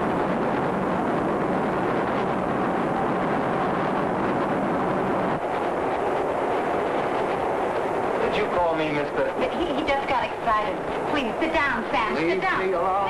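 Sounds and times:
subway train rumbling in tunnel: 0.0s - 13.0s.

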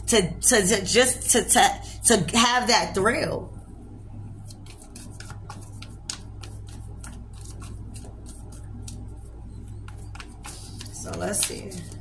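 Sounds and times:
low hum: 0.0s - 12.0s
cards being shuffled: 4.5s - 12.0s.

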